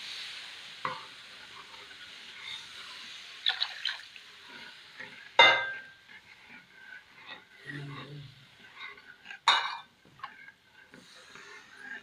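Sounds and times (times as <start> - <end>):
sizzle: 0.0 - 12.0
ladle stirring liquid batter: 3.5 - 12.0.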